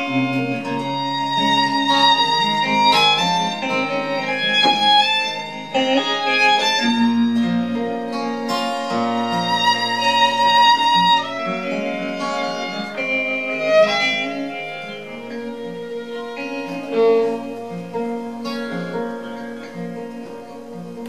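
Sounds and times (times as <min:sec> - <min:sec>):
bass guitar line: 0:00.0 - 0:08.4
violin lead with slides: 0:00.0 - 0:19.1
strummed acoustic guitar: 0:00.0 - 0:21.0.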